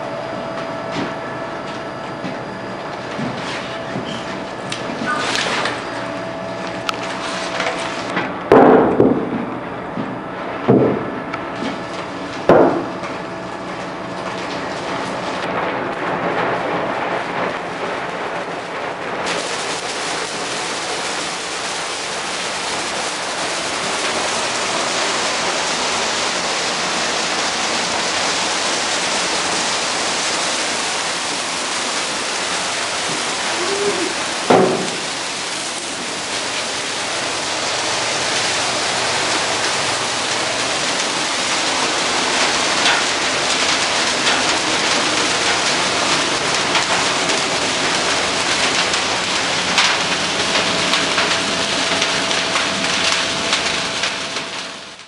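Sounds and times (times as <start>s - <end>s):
tree burning with crackle and hiss: 0.0s - 8.2s, 11.3s - 55.0s
sharp pop in fire: 33.6s - 35.1s.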